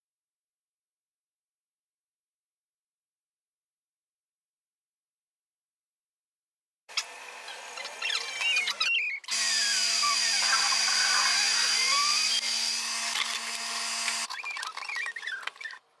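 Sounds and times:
small motors whirring: 0:06.9 - 0:15.8.

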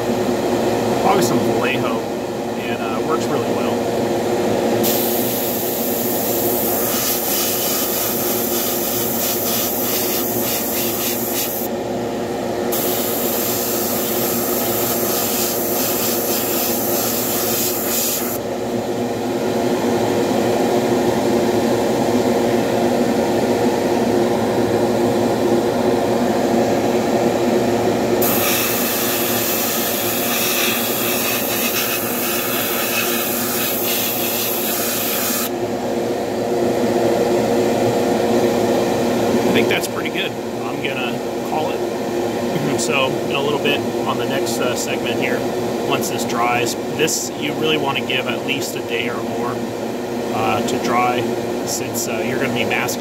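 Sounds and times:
steady hum: 0:00.0 - 0:53.0
airbrush hissing compressed air: 0:04.8 - 0:11.7, 0:12.7 - 0:18.4, 0:28.2 - 0:35.5.

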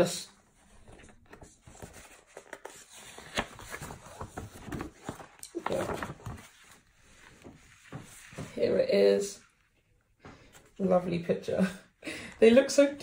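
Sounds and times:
stiff paper rustling and crackling: 0:00.6 - 0:08.6.

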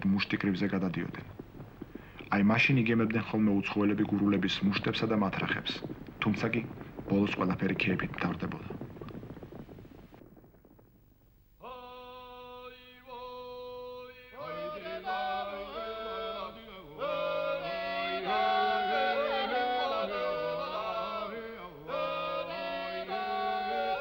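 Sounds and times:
polyphonic folk singing: 0:11.6 - 0:24.0.

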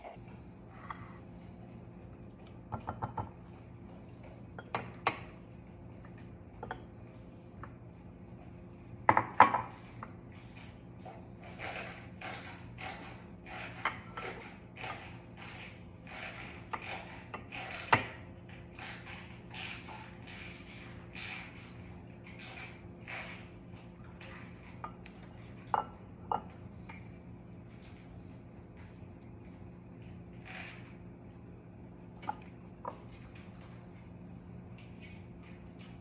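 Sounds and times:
faint steady hum: 0:00.0 - 0:36.0
spatula scraping bowl: 0:10.4 - 0:25.1.

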